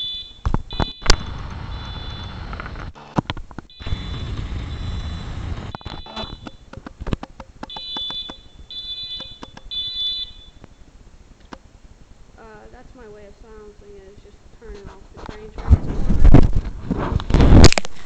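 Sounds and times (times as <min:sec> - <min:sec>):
fire alarm horn beeping: 0:00.0 - 0:02.4, 0:03.7 - 0:06.7, 0:07.7 - 0:10.6
sharp clicks: 0:05.6 - 0:08.5, 0:09.2 - 0:09.7.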